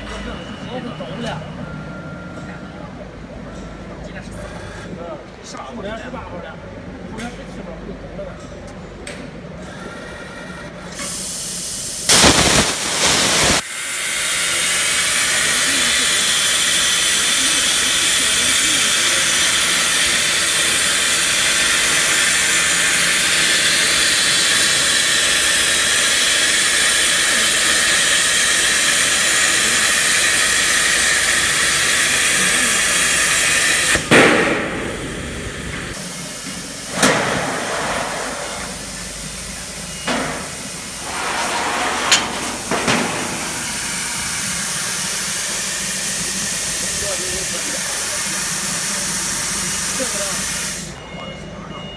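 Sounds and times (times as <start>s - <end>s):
plasma torch hissing: 11.0s - 51.0s
sharp crack: 12.1s - 13.6s, 33.9s - 35.1s.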